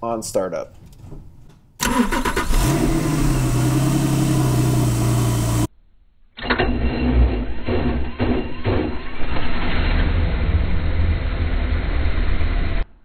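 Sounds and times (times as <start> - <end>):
car engine starting and revving: 1.8 - 5.7, 6.4 - 12.8.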